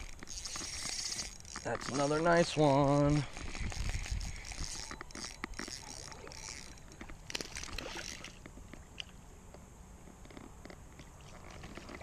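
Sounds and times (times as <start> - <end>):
creek water splashing: 0.0 - 9.2.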